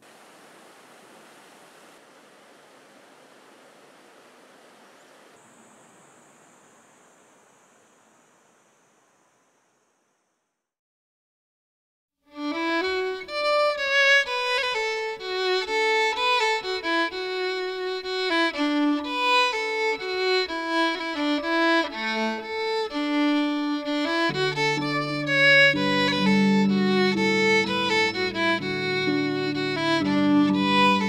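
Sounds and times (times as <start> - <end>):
solo violin melody: 12.3 - 31.0.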